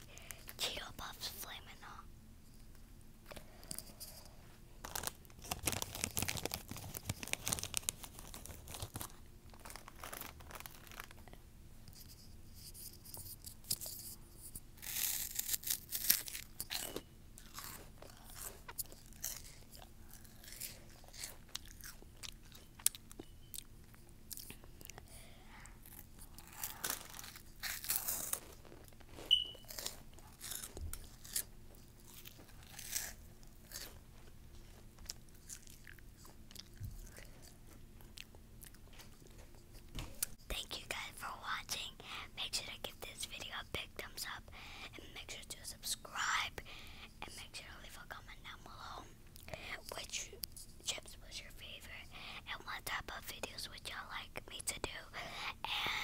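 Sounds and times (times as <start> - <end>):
crunching corn chips: 4.8 - 11.2, 14.8 - 23.2, 25.8 - 34.0.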